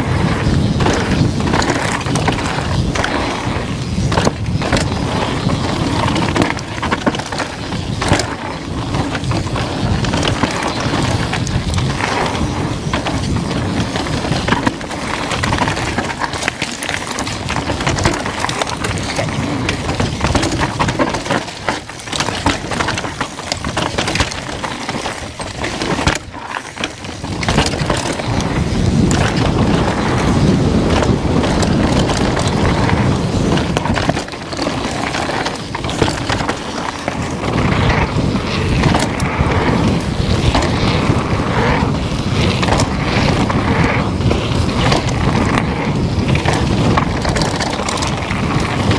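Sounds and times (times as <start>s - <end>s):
bike chain and frame rattling: 0.0s - 48.9s
bike tyres crunching over ground: 0.0s - 48.9s
wind buffeting microphone: 0.0s - 48.9s.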